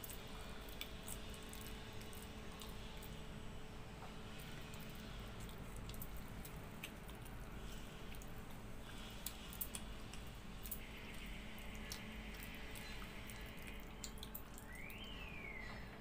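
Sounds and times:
hand squishing wet rice: 4.2 - 15.2.

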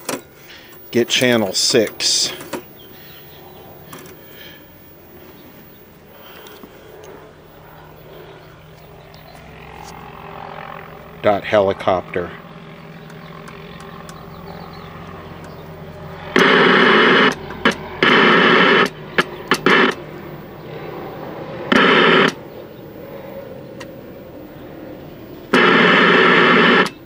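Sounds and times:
tv static hiss and buzz: 16.3 - 19.0, 19.6 - 20.0, 21.7 - 22.4, 25.6 - 27.0.

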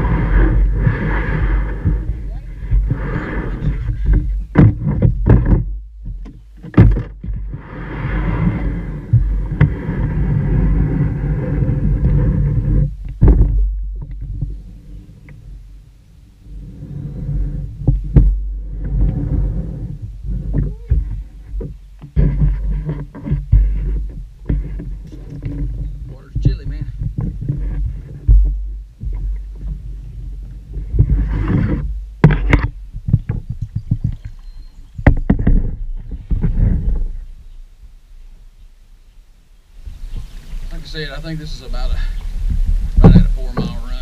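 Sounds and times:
paddle strokes splashing: 0.0 - 5.5, 6.6 - 15.5
low rumble on microphone: 0.0 - 44.0
sharp knocks: 3.8 - 7.6, 20.5 - 29.5.

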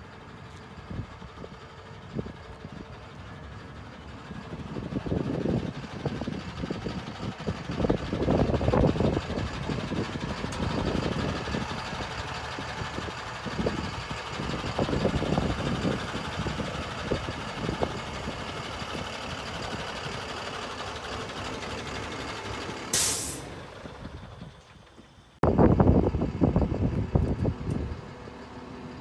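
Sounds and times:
truck engine running: 0.0 - 29.0
air hiss release: 22.9 - 23.5.

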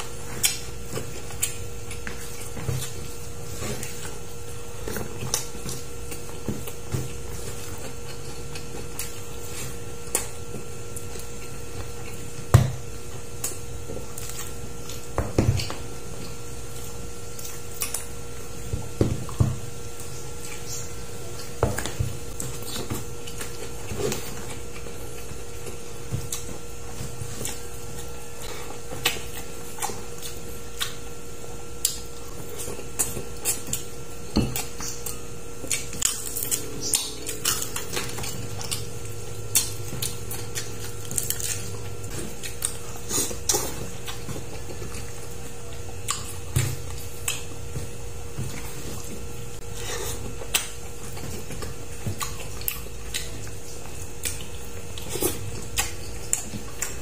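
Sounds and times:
faint steady hum: 0.0 - 57.0
chewing clicks and smacks: 27.4 - 31.1, 31.8 - 49.2, 50.3 - 57.0.

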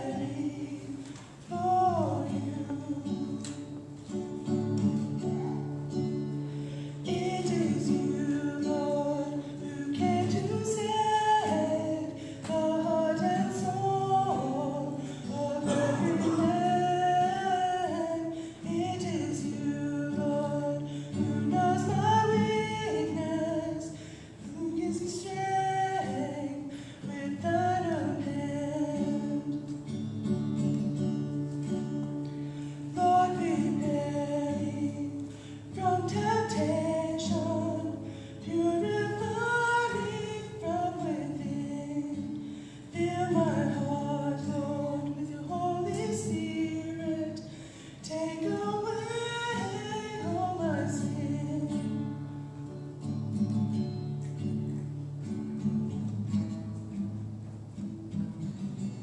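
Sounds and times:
woman singing: 0.0 - 3.8, 7.0 - 23.9, 24.5 - 29.7, 33.0 - 42.3, 43.0 - 47.4, 48.0 - 51.9
acoustic guitar strumming: 0.0 - 59.0.

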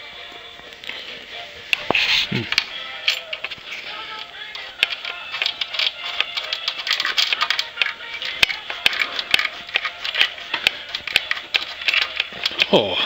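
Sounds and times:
music playing: 0.0 - 13.0
bolts and washers clicking: 1.7 - 12.8.

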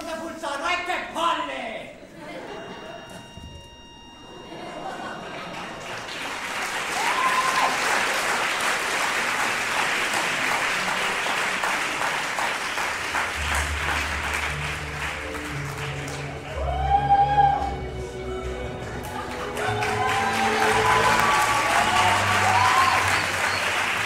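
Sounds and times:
audience applauding: 4.8 - 24.0
low music: 12.9 - 24.0.

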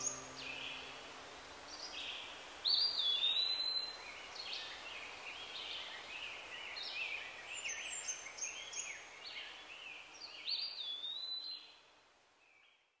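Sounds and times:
songbirds singing: 0.0 - 1.0.

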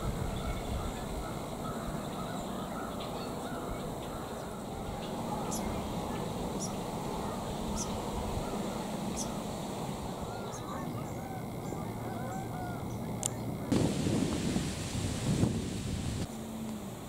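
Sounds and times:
wind through leaves: 0.0 - 17.0
geese honking: 0.4 - 13.7.

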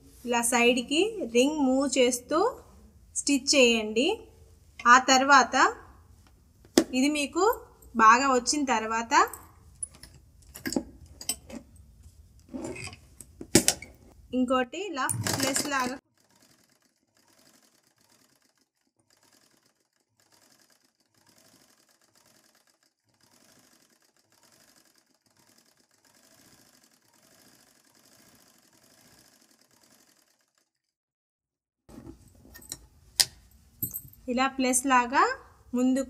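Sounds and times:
sewing machine running: 15.2 - 30.8.

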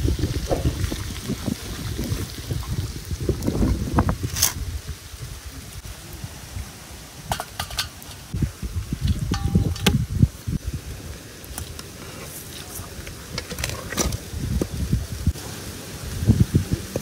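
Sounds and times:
metal ladle clinking on pot: 9.3 - 9.9.

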